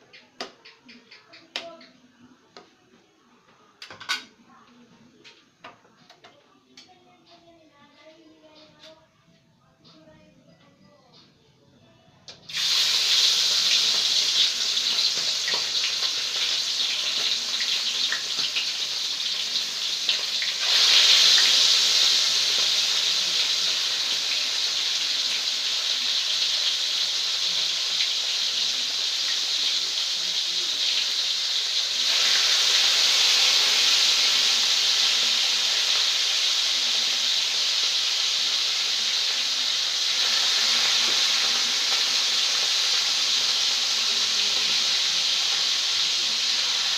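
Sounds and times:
soup boiling on a stove: 12.5s - 46.9s.

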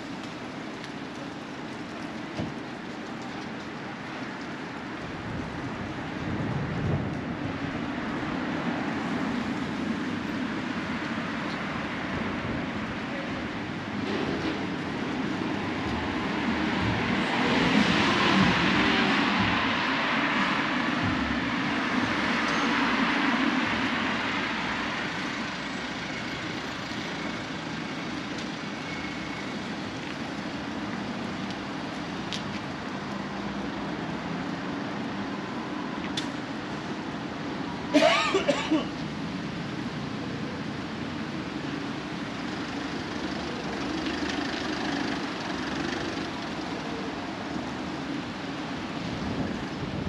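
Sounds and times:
steady traffic hum: 0.0s - 50.0s
car passing: 14.0s - 26.8s.

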